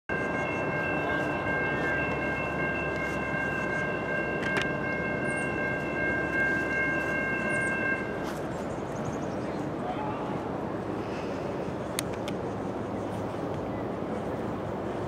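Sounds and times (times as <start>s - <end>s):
locomotive air horn chord: 0.1s - 8.4s
low train rumble: 0.1s - 15.0s.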